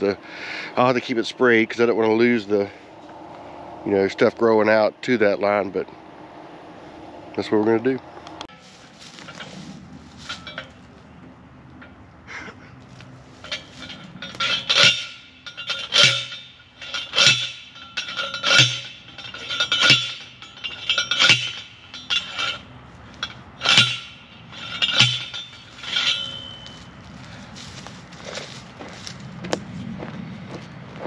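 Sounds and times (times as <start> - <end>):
post driver metallic clanks: 8.4 - 12.1, 12.9 - 27.4.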